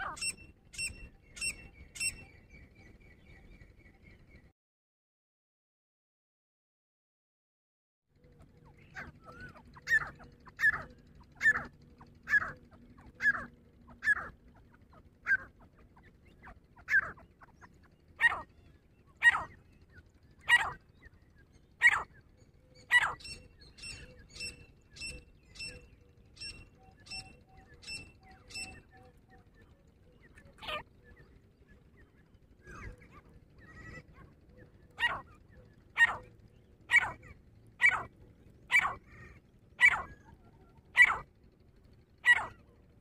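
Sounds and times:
francolin harsh calls: 0.0 - 2.3, 8.8 - 18.6, 19.2 - 19.7, 20.4 - 20.9, 21.8 - 22.2, 22.8 - 25.8, 35.0 - 36.3, 36.9 - 38.1, 38.7 - 41.3, 42.2 - 42.7
higher evenly spaced bird notes: 0.0 - 4.5, 8.3 - 43.0.

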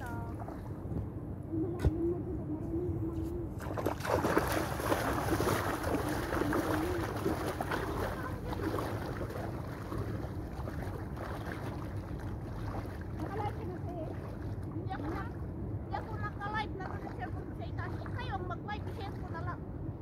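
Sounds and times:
wind rumble on microphone: 0.0 - 20.0
water splashing while wading: 3.6 - 19.6.

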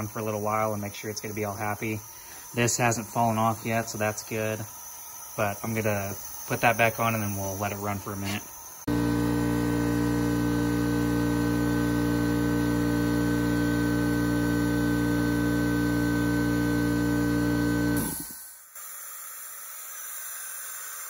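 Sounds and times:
hiss of escaping air: 1.5 - 8.9, 18.0 - 21.0
air compressor running: 1.5 - 21.0.

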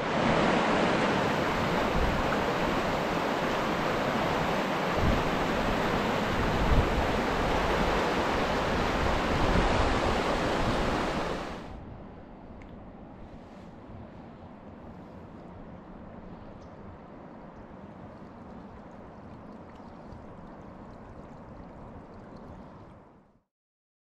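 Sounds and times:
creek rushing over rocks: 0.0 - 11.7.

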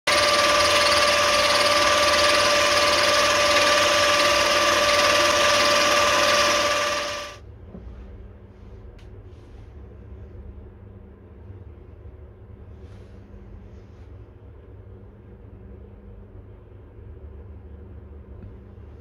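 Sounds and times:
lathe whirring with whine: 0.1 - 7.4.

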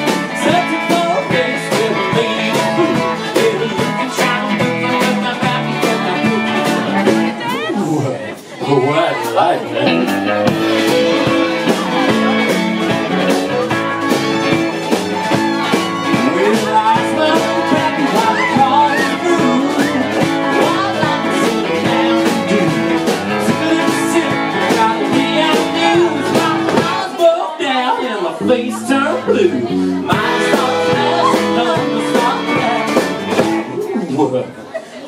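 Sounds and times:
drum kit beat: 0.0 - 8.5, 9.2 - 27.4, 28.4 - 34.0
electric guitars: 0.0 - 27.2, 28.4 - 34.0
fiddle: 8.6 - 33.9.

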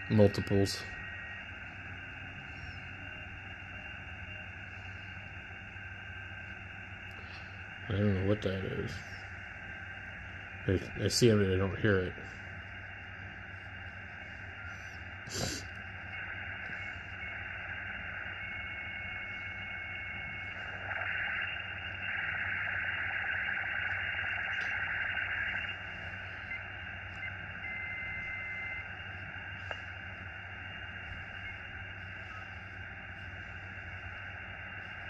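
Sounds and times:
radio receiver hiss: 0.0 - 35.0
radio click: 14.5 - 35.0
short steady whistles: 22.6 - 33.8.

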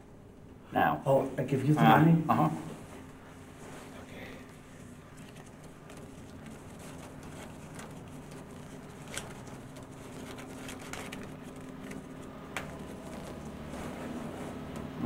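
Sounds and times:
steady low hum: 0.0 - 15.0
banknotes flicking and rustling: 4.4 - 14.8
sharp paper snap: 5.2 - 13.5.

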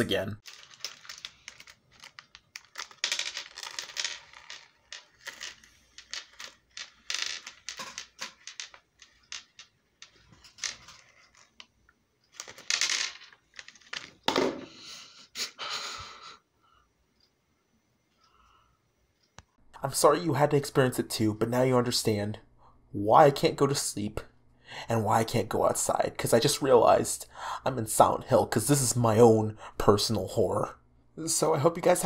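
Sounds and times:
plastic bag crinkling: 0.4 - 7.0
candies clattering on tabletop: 0.4 - 14.8.

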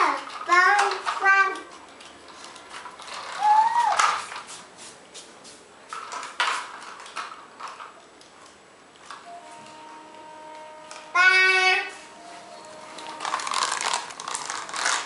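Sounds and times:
toy truck clattering on tile floor: 0.0 - 4.4, 5.9 - 8.0, 13.0 - 15.0.

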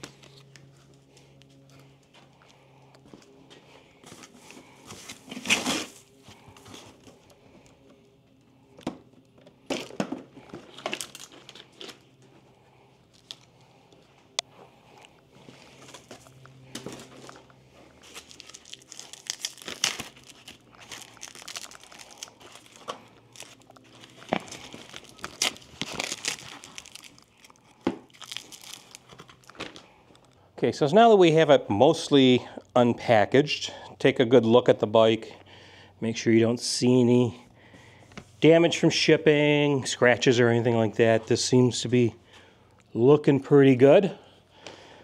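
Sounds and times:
plastic wrap crinkling and tearing: 9.8 - 12.1, 16.8 - 30.3.

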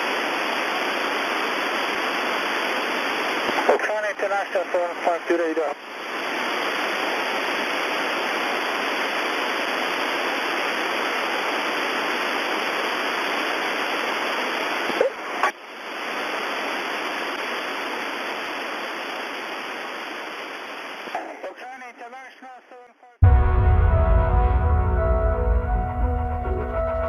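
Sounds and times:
radio static hiss: 0.0 - 23.2
sharp radio clicks: 3.4 - 4.0.

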